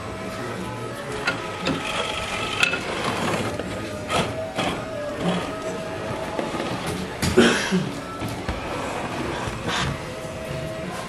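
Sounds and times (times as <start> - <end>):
toy car motor and gears whining: 1.2 - 6.9.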